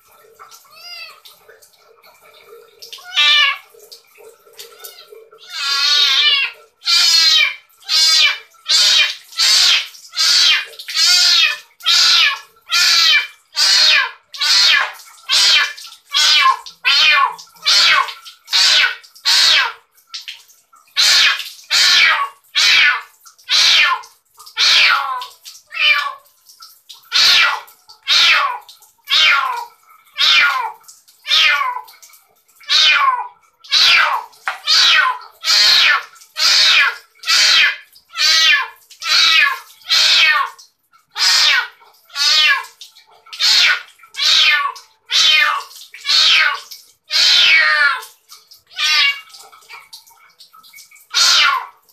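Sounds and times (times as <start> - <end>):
kitten meowing loudly: 0.7 - 1.2, 3.0 - 3.6, 4.7 - 19.8, 21.0 - 24.0, 24.6 - 26.2, 27.1 - 30.7, 31.3 - 31.8, 32.7 - 40.6, 41.2 - 42.8, 43.4 - 48.0, 48.7 - 49.2, 51.1 - 51.7.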